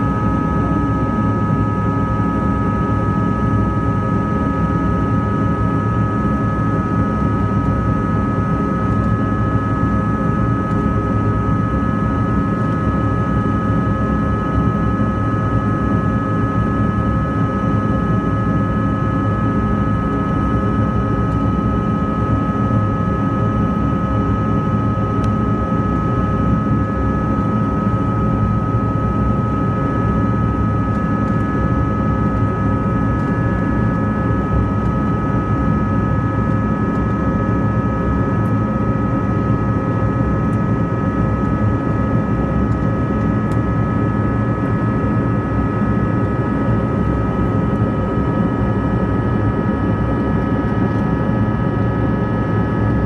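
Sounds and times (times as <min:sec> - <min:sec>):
jet engine and airflow roar: 0:00.0 - 0:53.0
steady high whine: 0:07.2 - 0:53.0.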